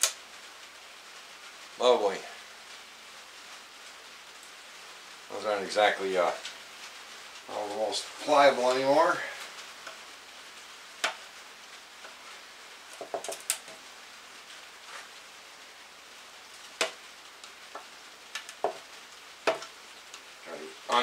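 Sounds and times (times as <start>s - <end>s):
low steady hiss: 0.0s - 21.0s.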